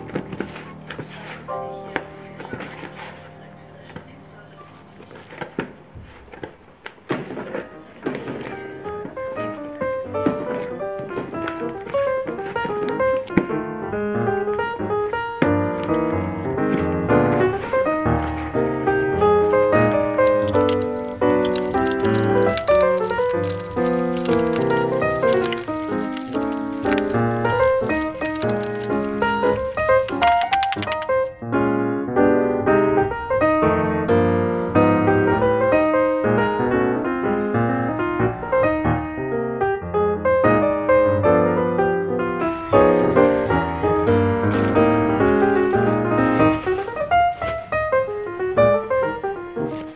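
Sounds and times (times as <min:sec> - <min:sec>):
keyboard background music: 0:00.0 - 0:04.8, 0:08.8 - 0:33.0.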